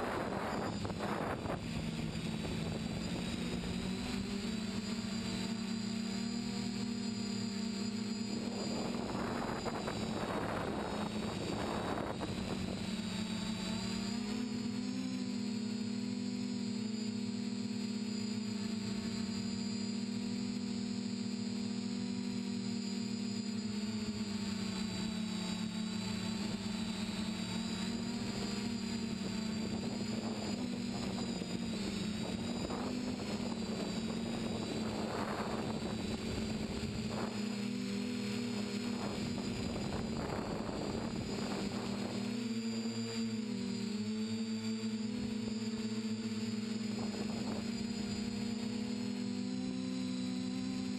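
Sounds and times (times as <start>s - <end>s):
quadcopter propellers whining: 0.0s - 50.9s.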